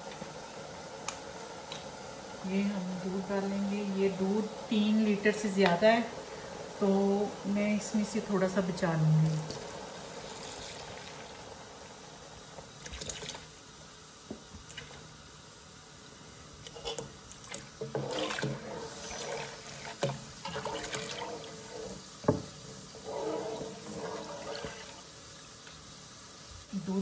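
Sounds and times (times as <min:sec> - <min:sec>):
milk pouring into a pot: 0:09.5 - 0:12.0, 0:17.2 - 0:25.7.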